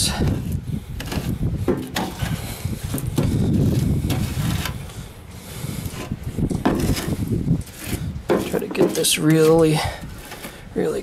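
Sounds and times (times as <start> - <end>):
trowel scraping cement on metal: 0.0 - 4.9, 5.8 - 10.7.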